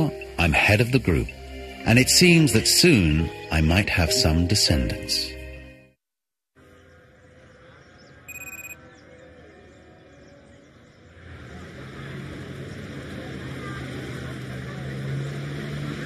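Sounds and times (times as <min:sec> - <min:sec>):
vehicle engine drone: 0:00.0 - 0:04.9, 0:09.2 - 0:16.0
short high beep: 0:08.3 - 0:08.8.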